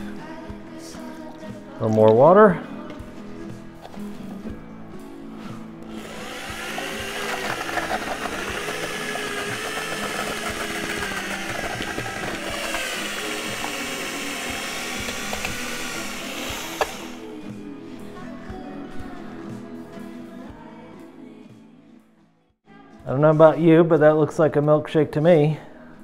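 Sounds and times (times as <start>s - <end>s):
electric mixer motor whine: 5.8s - 17.4s
paddle mixing thick slurry: 5.9s - 17.2s.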